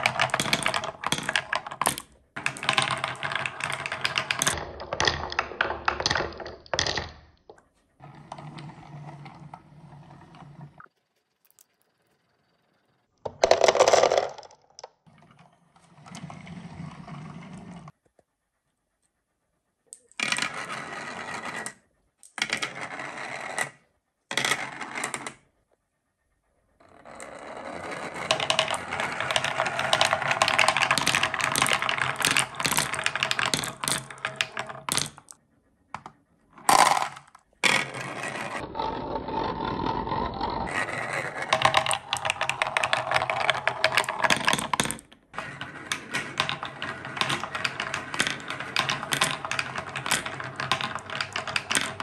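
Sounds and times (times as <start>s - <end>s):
marbles rolling on wooden slope: 0.0s - 7.3s, 8.0s - 10.9s, 13.3s - 18.0s, 20.0s - 25.4s, 26.8s - 52.0s
marbles clinking together: 13.3s - 14.9s, 41.4s - 45.1s.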